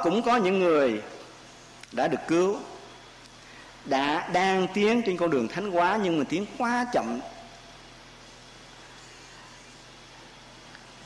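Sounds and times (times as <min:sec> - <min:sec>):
faint low hum: 0:00.0 - 0:11.0
low steady hiss: 0:00.0 - 0:11.0.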